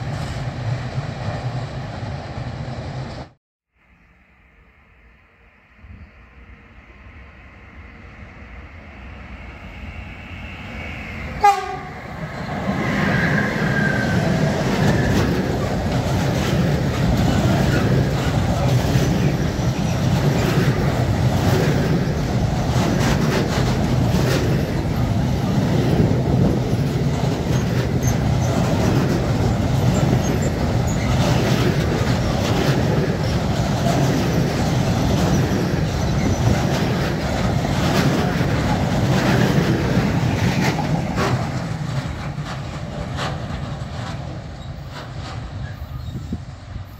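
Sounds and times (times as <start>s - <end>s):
locomotive horn blast: 11.4s - 12.0s
train wheels clattering on rails: 11.5s - 46.8s.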